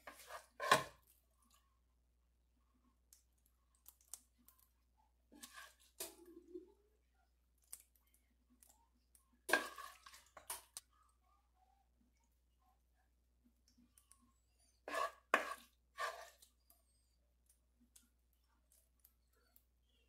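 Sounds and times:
wooden spoon scraping a frying pan: 0.0 - 1.0, 5.3 - 6.3, 9.5 - 10.6, 14.8 - 16.5.

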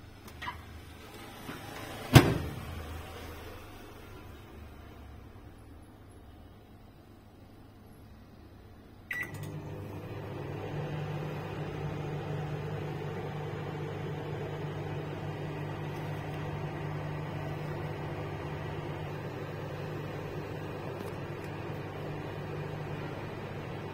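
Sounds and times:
microwave humming: 8.9 - 23.9
microwave keypad beep: 9.1 - 9.5.

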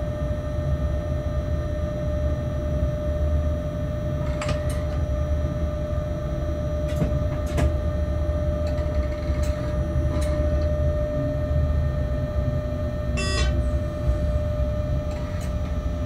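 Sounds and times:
constant whine: 0.0 - 16.0
sharp clicks and knocks: 6.9 - 7.8.

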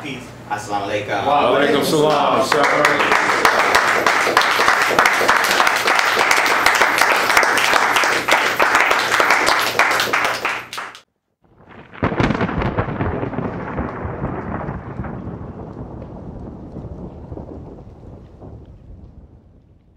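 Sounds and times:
audience applauding: 1.7 - 11.0
low rumble: 11.6 - 19.9.

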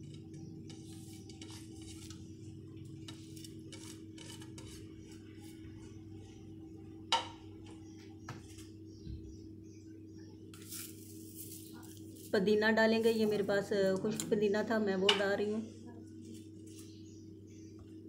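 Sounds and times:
fingers scraping ceramic plate: 0.0 - 2.3, 3.0 - 5.5
steady low hum: 0.0 - 18.0.

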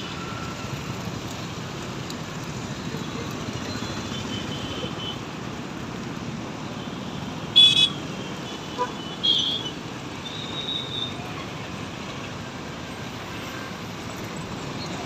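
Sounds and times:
road traffic: 0.0 - 15.0.

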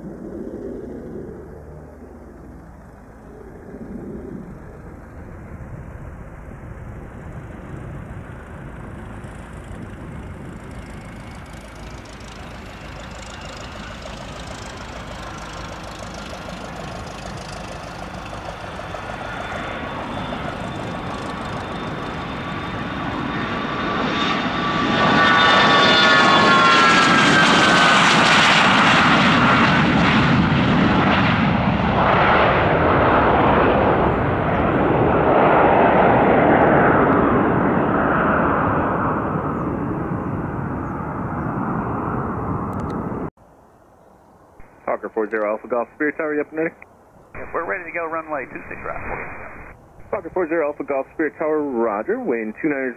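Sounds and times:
jet engines roaring at takeoff: 0.0 - 43.4, 44.6 - 52.9
high jet whine: 47.4 - 51.2.

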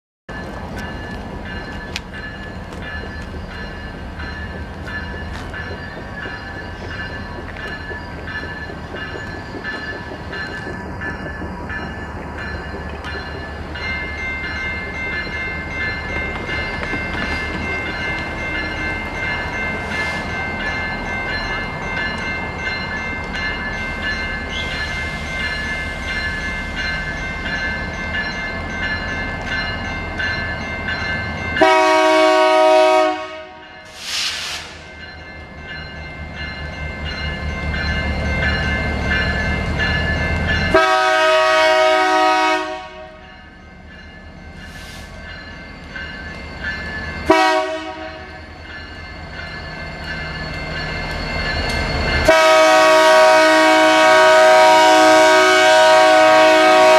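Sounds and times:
railroad crossing bell ringing: 0.3 - 34.1, 34.7 - 56.9
low train rumble: 0.3 - 56.9
locomotive air horn blasts: 31.6 - 33.6, 40.7 - 43.2, 47.3 - 48.3, 52.3 - 56.9.

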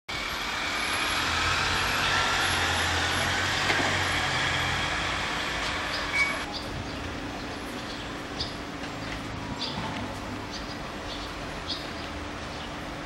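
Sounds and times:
road noise hiss: 0.1 - 13.0
vehicle engine humming: 0.1 - 13.0.

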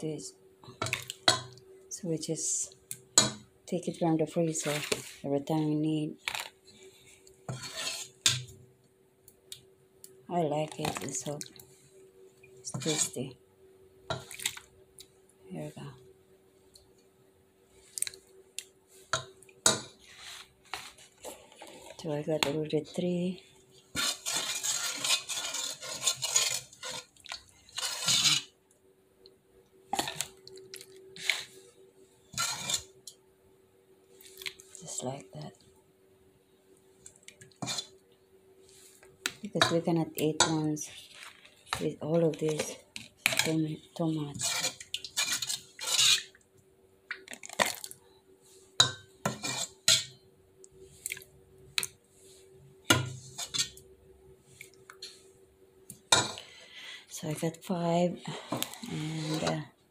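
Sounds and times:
spoon scraping a pot: 4.5 - 5.2, 7.5 - 8.5, 12.7 - 13.2, 23.9 - 28.5, 32.3 - 33.0, 37.6 - 38.0, 39.4 - 46.4, 48.8 - 50.2, 52.9 - 53.8, 58.3 - 59.6.

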